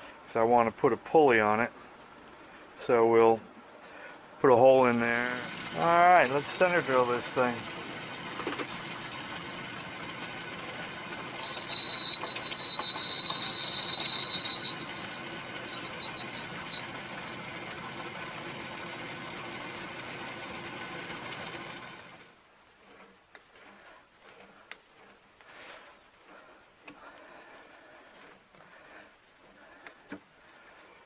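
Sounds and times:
lathe running with steady hum: 4.3s - 30.8s
drill squealing while cutting metal: 5.3s - 22.0s
faint ticks: 26.8s - 27.1s.

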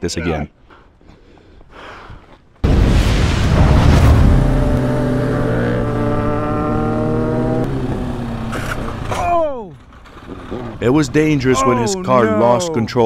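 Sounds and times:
motorcycle engine accelerating: 3.6s - 9.2s, 10.1s - 10.8s.

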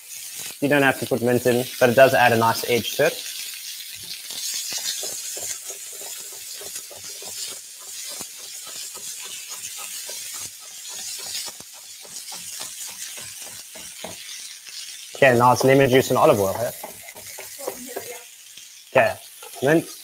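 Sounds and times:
steady hiss: 10.7s - 18.2s
knife chopping on wooden board: 16.7s - 18.1s.

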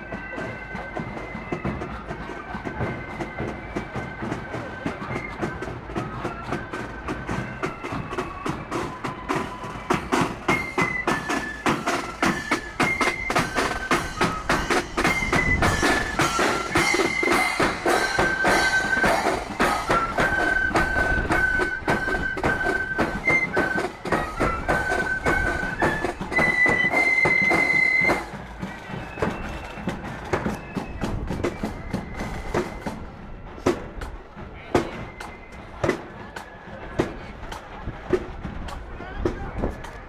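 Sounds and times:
marching flute band: 0.0s - 40.0s
cymbals crashing: 16.2s - 19.9s.

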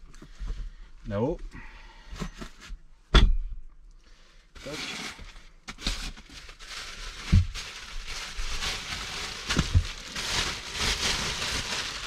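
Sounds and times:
plastic bag rustling: 4.6s - 12.0s.

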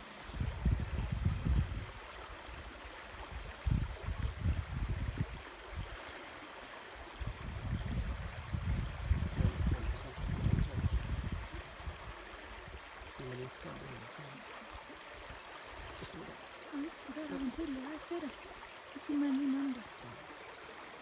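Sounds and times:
stream running over stones: 0.0s - 21.0s
wind rumble on microphone: 0.2s - 6.0s, 7.2s - 13.3s.

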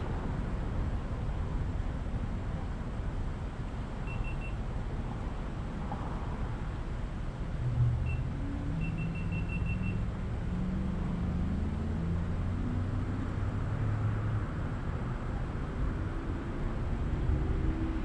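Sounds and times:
short high beeps: 4.1s - 4.6s, 8.8s - 10.0s
vehicle engines pulling away: 7.6s - 14.4s.

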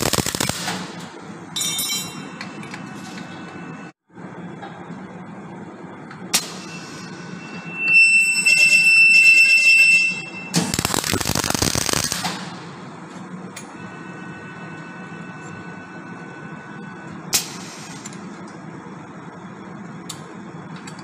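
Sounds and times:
welding arc crackling: 0.0s - 1.1s, 10.6s - 12.7s
welding cell hum: 0.0s - 21.0s
electronic beep: 6.6s - 10.6s, 13.8s - 17.2s.

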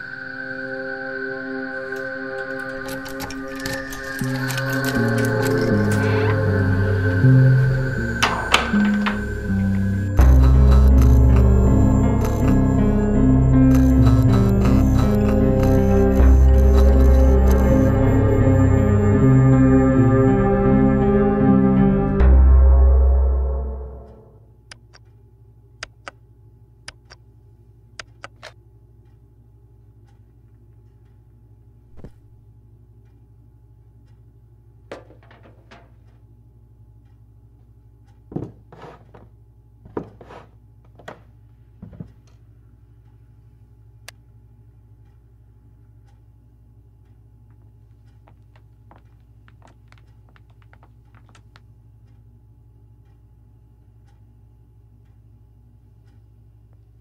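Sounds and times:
low hum: 0.0s - 24.8s
low steady hum: 0.0s - 57.0s
clock-like ticking: 8.2s - 18.2s.

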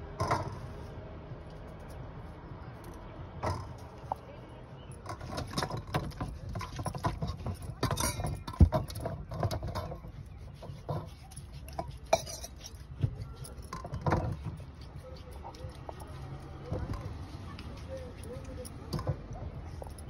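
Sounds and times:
carrots rubbed and shifted: 0.0s - 20.0s
steel clinking on steel: 4.9s - 14.6s.

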